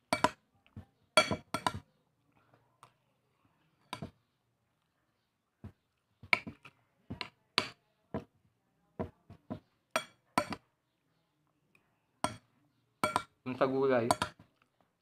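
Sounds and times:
spoon clinking on a plate: 0:01.2 - 0:01.8, 0:03.9 - 0:04.1, 0:10.0 - 0:10.6, 0:12.2 - 0:13.3, 0:14.0 - 0:14.4.

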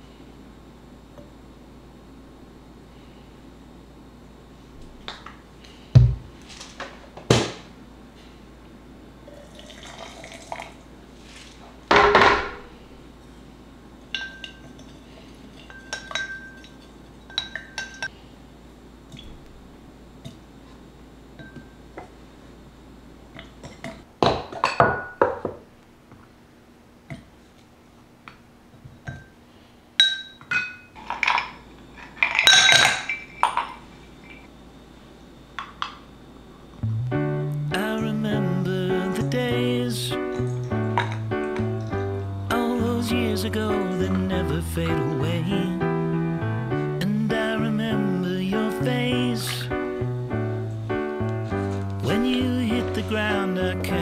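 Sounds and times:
glass clinking: 0:14.1 - 0:15.0, 0:15.6 - 0:18.1, 0:21.4 - 0:21.8, 0:24.6 - 0:25.4, 0:30.0 - 0:31.5, 0:32.3 - 0:34.4.

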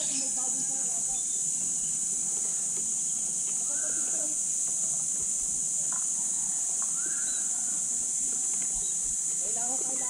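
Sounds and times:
insects buzzing: 0:00.0 - 0:10.0
faint whistled calls: 0:03.1 - 0:04.4, 0:06.3 - 0:07.7.

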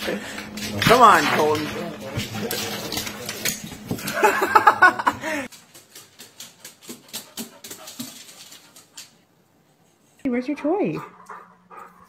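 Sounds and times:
dog claws ticking on wooden floor: 0:05.5 - 0:09.2.

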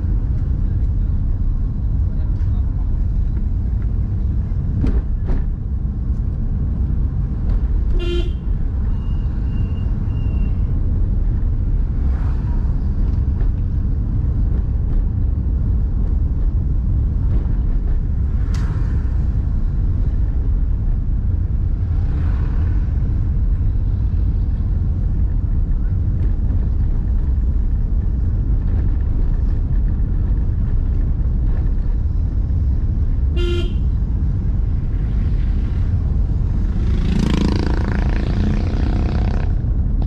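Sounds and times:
car driving on paved road: 0:00.0 - 0:40.0
car horn toot: 0:07.9 - 0:10.3, 0:33.4 - 0:34.0.

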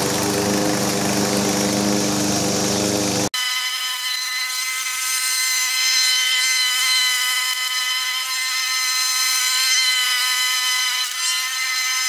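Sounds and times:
high-pitched motor whine: 0:00.0 - 0:04.6.

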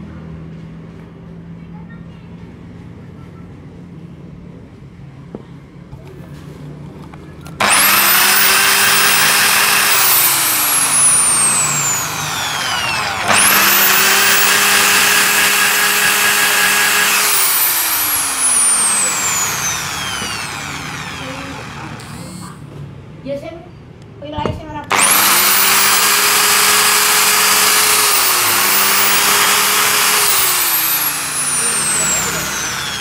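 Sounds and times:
electric grinder whining: 0:07.6 - 0:22.6, 0:24.9 - 0:33.0.

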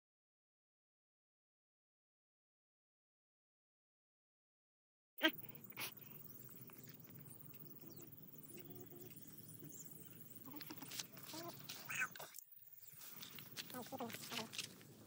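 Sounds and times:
distant bird calls: 0:05.2 - 0:14.6.

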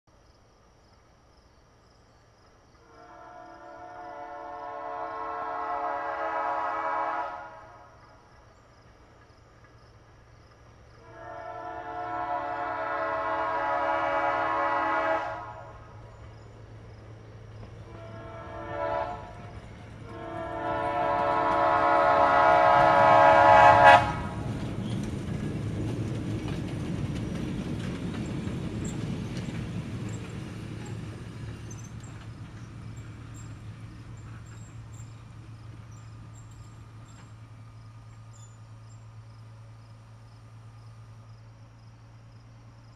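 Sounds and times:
train rolling past on track: 0:02.4 - 0:42.9
train air horn chord: 0:02.8 - 0:07.9, 0:11.0 - 0:15.9, 0:17.9 - 0:19.4, 0:20.0 - 0:24.5.

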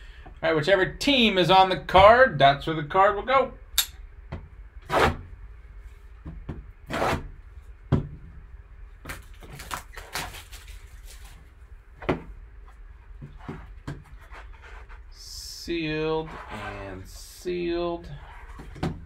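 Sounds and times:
cardboard box scraping on table: 0:06.9 - 0:07.3, 0:16.2 - 0:17.1
rustling handling sounds: 0:09.0 - 0:11.8.

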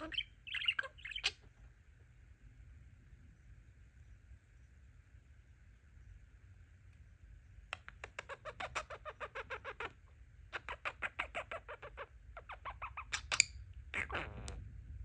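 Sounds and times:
budgerigar chirping: 0:00.0 - 0:01.4, 0:07.8 - 0:14.6.

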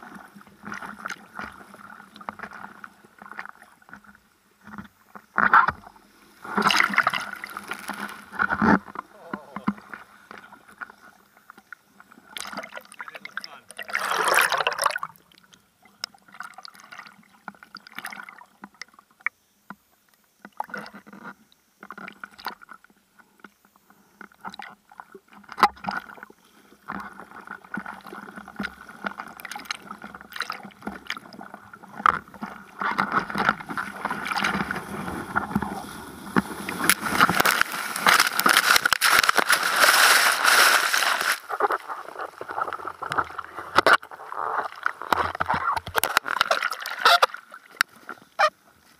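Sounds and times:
sea water lapping against board: 0:05.2 - 0:11.0, 0:24.5 - 0:48.6.

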